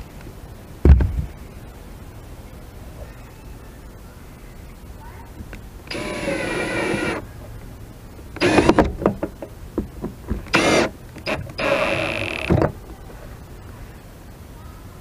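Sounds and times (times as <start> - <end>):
drill motor driving screws: 5.9 - 7.2, 8.4 - 9.0, 10.5 - 12.7
sharp clicks and knocks: 8.4 - 12.8.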